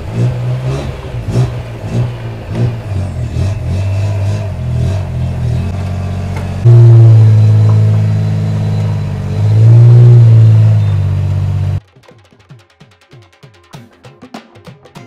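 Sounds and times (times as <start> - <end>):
engine revving in pulses: 0.0 - 11.8.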